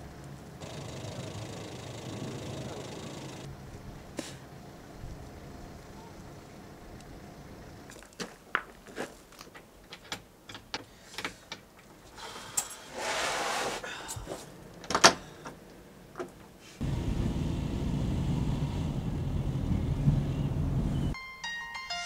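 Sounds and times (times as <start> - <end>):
rustling scrape: 12.7 - 14.5.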